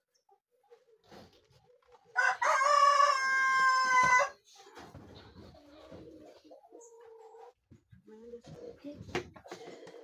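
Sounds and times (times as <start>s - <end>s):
rooster crowing: 2.2s - 4.4s.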